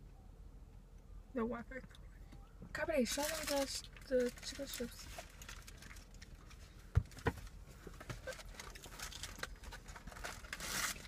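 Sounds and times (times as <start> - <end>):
paper wrapper crinkling: 3.1 - 6.7, 8.2 - 11.0.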